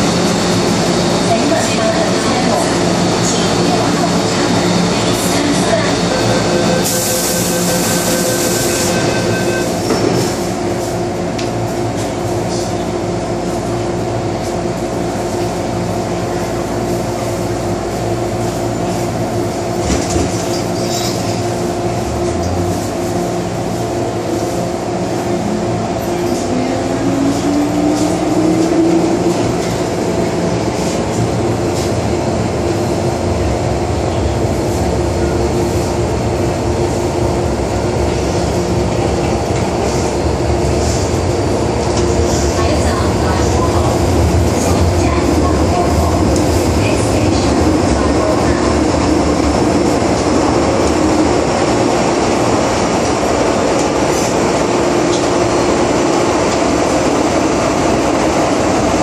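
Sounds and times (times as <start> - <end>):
train running noise: 0.0 - 59.0
train doors shutting with a knock: 9.8 - 10.4.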